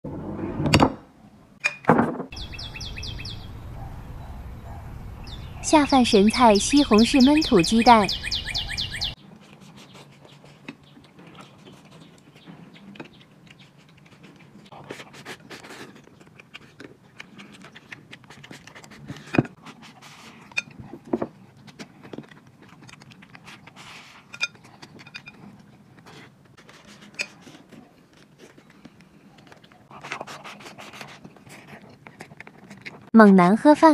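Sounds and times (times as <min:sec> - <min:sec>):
chewing mouth noises: 0:09.7 - 0:19.3, 0:20.3 - 0:26.4.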